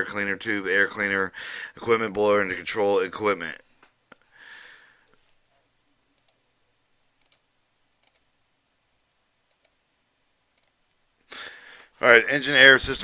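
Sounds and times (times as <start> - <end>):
faint computer mouse clicks: 8.0 - 8.3, 9.5 - 9.8.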